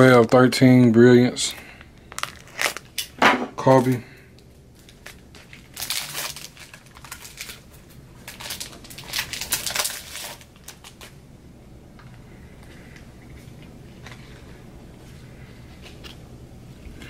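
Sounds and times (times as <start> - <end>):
card pack crinkling: 2.0 - 3.1, 4.7 - 11.2.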